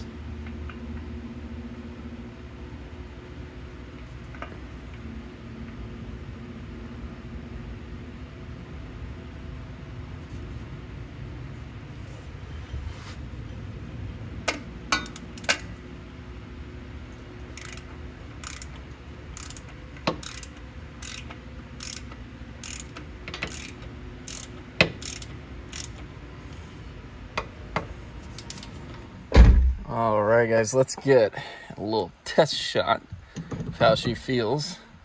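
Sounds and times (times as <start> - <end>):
low steady hum: 0.0 - 35.0
ratchet wrench clicking: 14.5 - 15.7, 17.4 - 26.1, 28.3 - 28.7.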